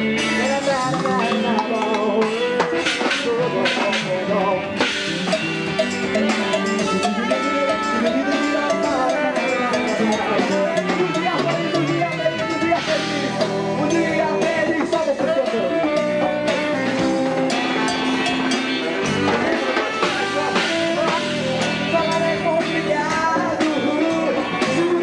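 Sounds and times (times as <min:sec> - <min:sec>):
hand drums: 0:00.0 - 0:25.0
person singing: 0:00.0 - 0:25.0
saxophone: 0:02.4 - 0:14.8, 0:15.9 - 0:22.4.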